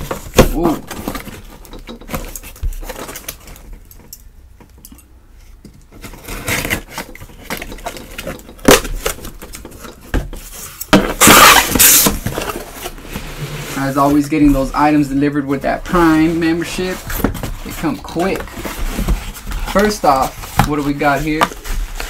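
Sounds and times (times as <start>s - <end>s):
cardboard flap ripping open: 11.0s - 12.7s
blade scraping packing tape: 11.2s - 12.2s.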